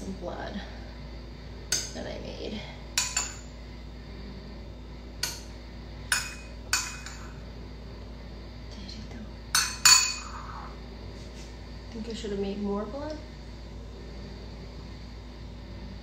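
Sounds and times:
spoon clinking on ceramic bowl: 0:09.5 - 0:10.4.

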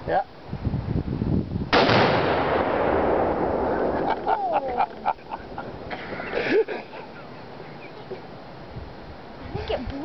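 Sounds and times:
gunshot: 0:01.7 - 0:04.1
explosion with rolling echo: 0:01.7 - 0:04.3.

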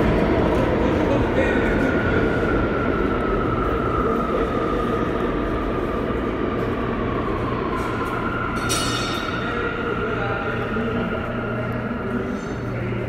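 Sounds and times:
subway train rumbling in tunnel: 0:00.0 - 0:13.0.

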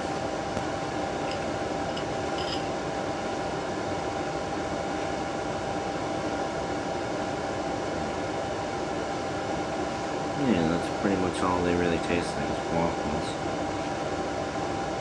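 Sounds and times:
room noise hum and hiss: 0:00.0 - 0:15.0
faint constant tone: 0:00.9 - 0:04.2.

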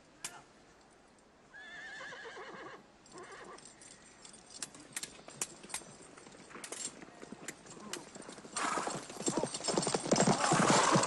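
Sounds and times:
horse whinnying: 0:01.5 - 0:03.6, 0:10.1 - 0:11.0.

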